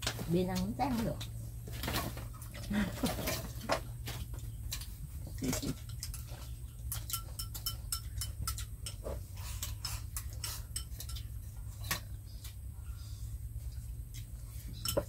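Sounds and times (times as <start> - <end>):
steady low hum: 0.0 - 15.0
utensils clinking on ceramic bowls: 5.4 - 12.0, 14.6 - 15.0.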